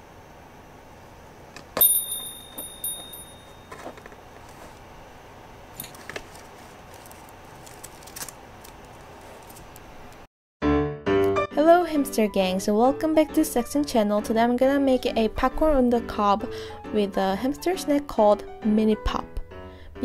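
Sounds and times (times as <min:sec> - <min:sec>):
small metal bell ringing: 0:01.8 - 0:03.8.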